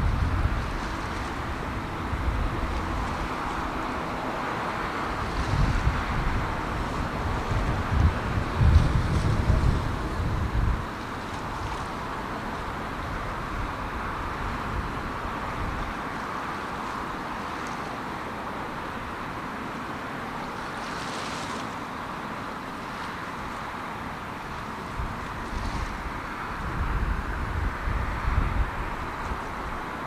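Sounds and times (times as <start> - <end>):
wind buffeting the microphone: 0.0 - 16.1, 24.5 - 30.0
sea water washing: 0.0 - 30.0
wind: 0.0 - 30.0.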